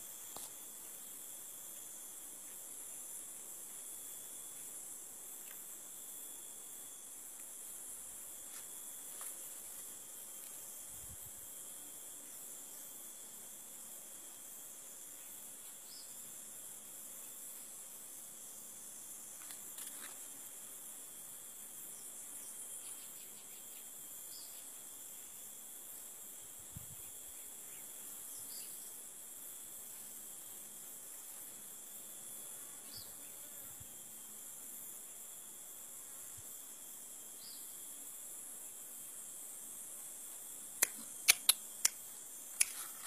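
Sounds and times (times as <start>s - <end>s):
insects droning: 0.0s - 43.0s
thin constant whine: 0.0s - 43.0s
faint chirps and clicks: 40.8s - 43.0s.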